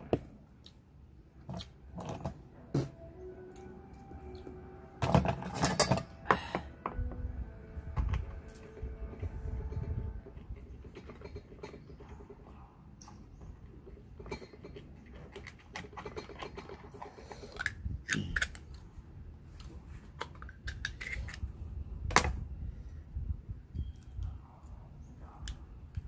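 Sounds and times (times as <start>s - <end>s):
knife shucking oysters: 17.1s - 18.8s, 20.3s - 21.5s.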